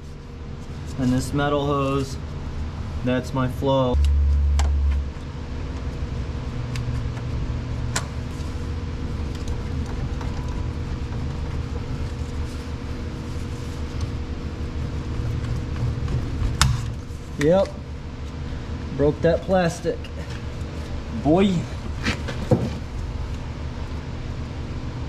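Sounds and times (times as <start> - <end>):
low mechanical hum: 0.0 - 25.0
low rumble: 3.9 - 18.1.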